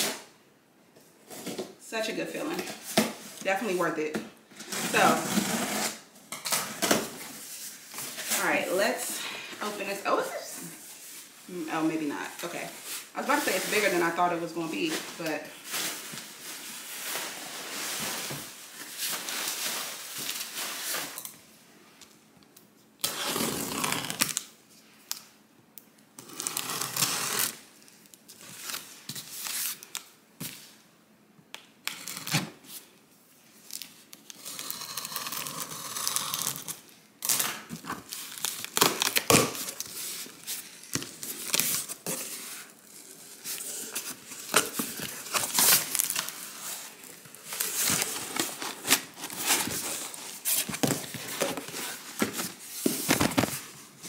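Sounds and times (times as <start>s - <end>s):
cardboard and packing rustling: 2.4s - 21.3s, 37.3s - 54.0s.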